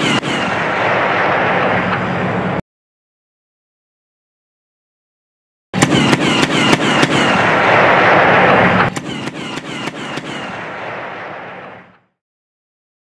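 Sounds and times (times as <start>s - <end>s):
autocannon firing rapid shots: 5.8s - 11.2s.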